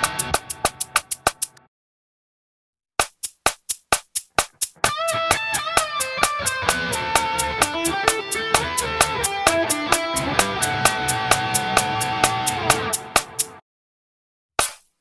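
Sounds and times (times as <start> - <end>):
distorted electric guitar lead: 0.0 - 0.9, 4.8 - 13.6
drum backing track: 0.0 - 1.6, 3.0 - 13.6, 14.6 - 15.0.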